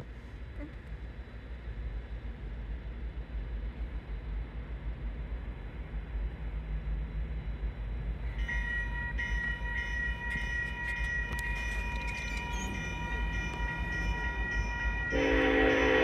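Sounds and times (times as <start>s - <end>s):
crossing warning bell ringing: 8.3s - 16.0s.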